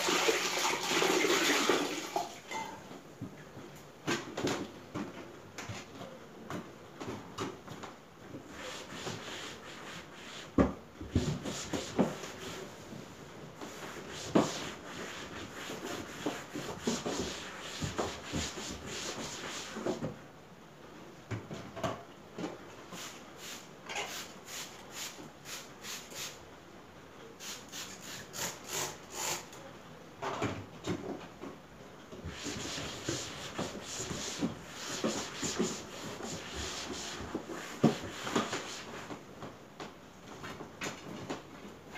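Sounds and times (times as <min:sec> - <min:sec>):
cloth scrubbing on wood: 0:32.3 - 0:39.0.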